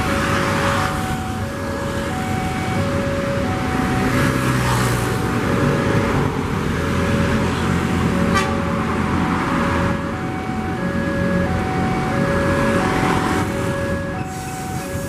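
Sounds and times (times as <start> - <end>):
level crossing warning alarm: 0.0 - 15.0.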